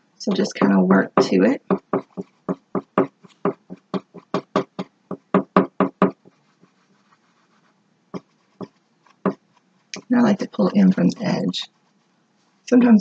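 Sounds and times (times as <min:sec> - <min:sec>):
paintbrush tapping on canvas: 0:00.3 - 0:06.3, 0:08.2 - 0:09.4.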